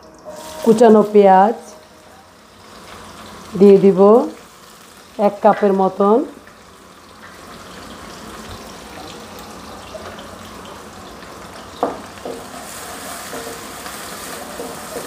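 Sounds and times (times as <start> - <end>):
onions sizzling in oil: 0.0 - 15.0
spatula scraping a pan: 12.5 - 15.0.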